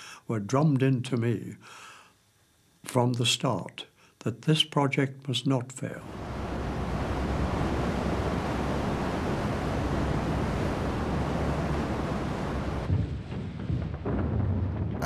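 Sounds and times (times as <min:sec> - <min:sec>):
sea waves: 0:06.0 - 0:12.9
wind: 0:06.0 - 0:12.9
low rumble: 0:06.0 - 0:15.0.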